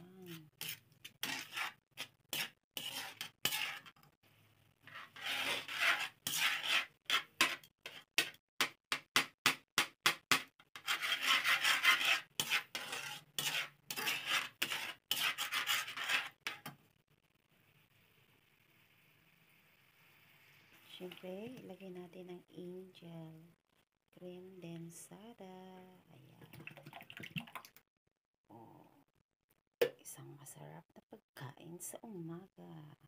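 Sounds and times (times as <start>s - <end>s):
metal tongs scraping a pan: 0.2s - 4.1s, 4.8s - 8.4s, 10.7s - 16.8s.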